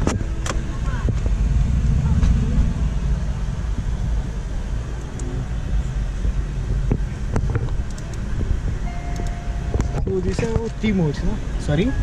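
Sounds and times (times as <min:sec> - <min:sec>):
wind buffeting microphone: 0:00.0 - 0:12.0
short steady tone: 0:08.8 - 0:10.8.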